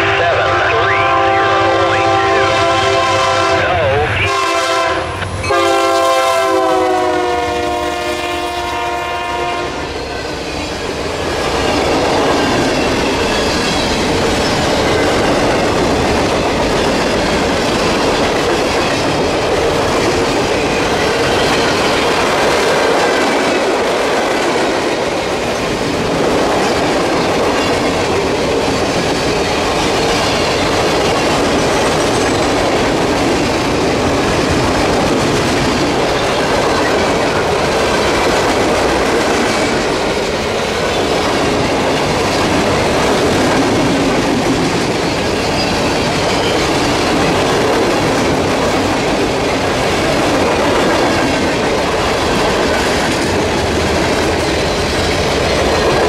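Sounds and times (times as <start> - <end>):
locomotive air horn: 0.0 - 9.9
train rumbling: 0.0 - 56.0.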